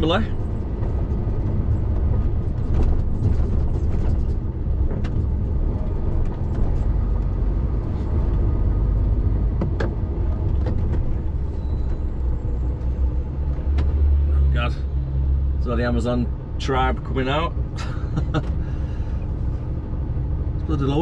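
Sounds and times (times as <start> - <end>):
lorry diesel engine rumble: 0.0 - 21.0
light knocks and rattles: 0.3 - 7.4.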